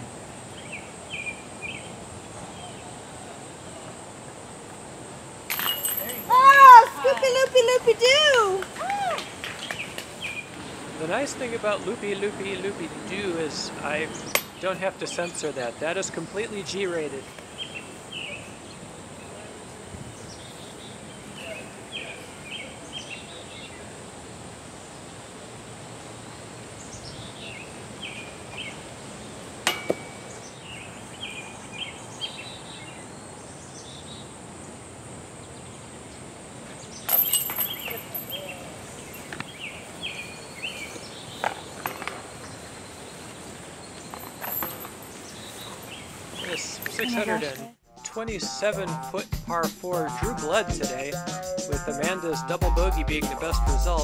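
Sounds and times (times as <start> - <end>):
birds chirping: 9.5 - 19.5, 36.8 - 47.7.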